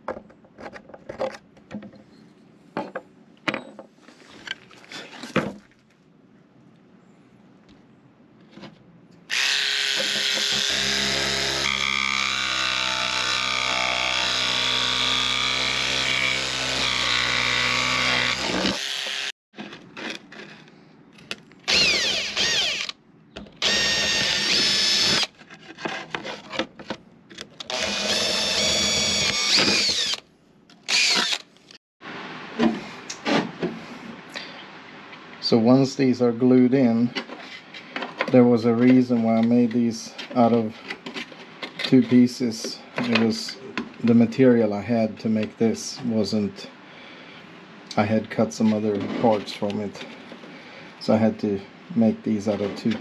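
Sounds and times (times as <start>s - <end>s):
electric drill boring: 9.3s - 19.3s, 21.7s - 23.0s, 23.6s - 25.3s, 27.7s - 30.2s, 30.9s - 31.5s
jigsaw cutting sheet: 9.3s - 19.3s.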